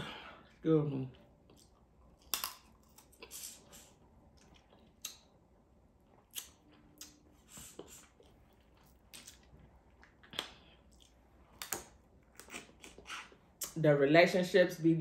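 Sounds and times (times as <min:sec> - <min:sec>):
quiet chewing: 0:01.2 - 0:13.8.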